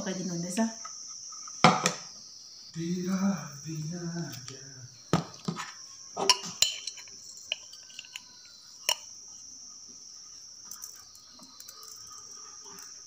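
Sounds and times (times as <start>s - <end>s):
high-pitched insect drone: 0.0s - 13.0s
spoon tapping against bowl: 6.2s - 9.1s.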